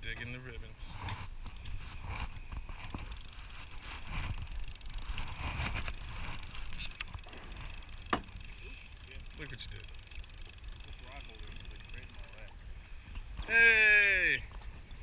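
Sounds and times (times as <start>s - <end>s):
wind rumbling on microphone: 0.6s - 7.8s
fishing reel knocks and clicks: 2.7s - 12.6s.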